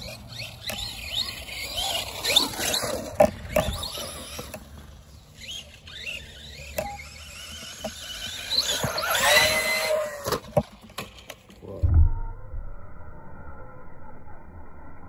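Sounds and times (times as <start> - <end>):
electric motor whining: 0.0 - 10.6
toy truck clacking on ground: 0.0 - 11.6.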